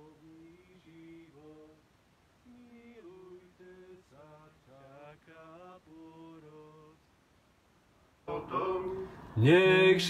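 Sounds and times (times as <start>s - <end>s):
small group singing a hymn: 2.5s - 7.0s, 8.3s - 10.0s.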